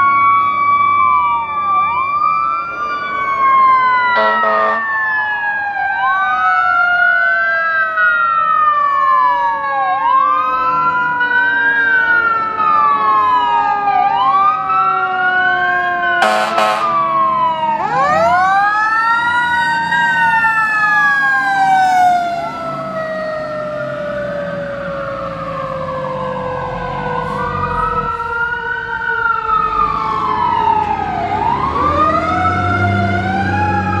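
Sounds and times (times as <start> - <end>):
fire engine siren wailing: 0.0 - 34.0
lower siren tone falling: 0.0 - 34.0
truck engine rumble: 9.2 - 34.0.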